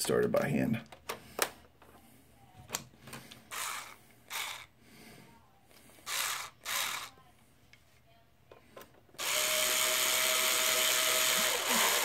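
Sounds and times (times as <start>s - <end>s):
electric screwdriver driving screw: 3.5s - 4.7s, 6.0s - 7.1s, 9.2s - 12.0s.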